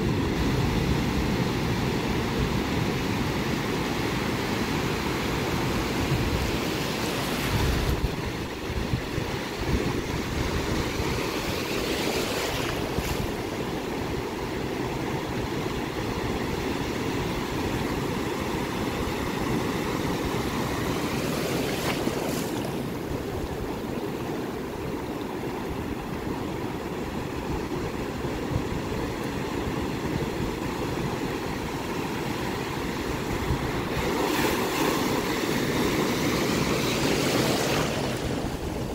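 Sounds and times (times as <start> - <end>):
ocean surf washing up beach: 0.0 - 38.9
wind rumbling on microphone: 0.0 - 38.9
wave crashing: 27.0 - 38.9.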